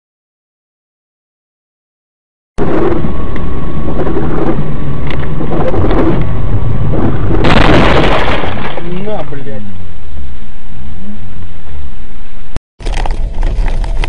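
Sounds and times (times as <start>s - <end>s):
distorted wind and road noise: 2.6s - 14.0s.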